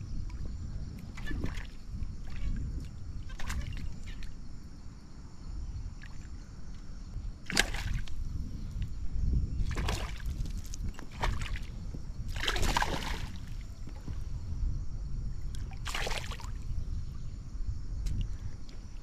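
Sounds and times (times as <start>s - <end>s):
water splashing: 7.5s - 8.1s, 12.3s - 13.6s, 15.8s - 16.6s
steady low rumble: 10.5s - 15.8s.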